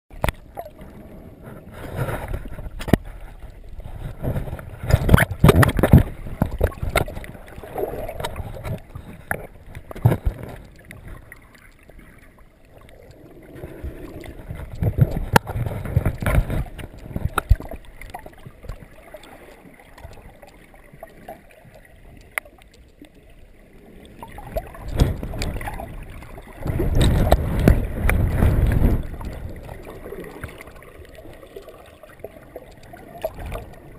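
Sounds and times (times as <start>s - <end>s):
water sloshing underwater: 0.1s - 33.9s
sharp clicks and knocks: 14.6s - 18.8s.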